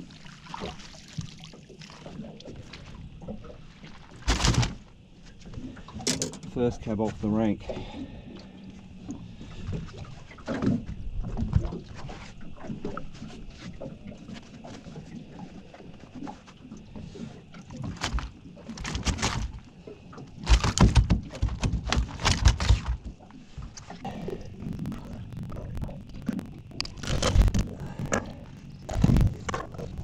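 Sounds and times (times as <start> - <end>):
fish thumping on deck: 4.2 - 4.8, 20.4 - 23.1.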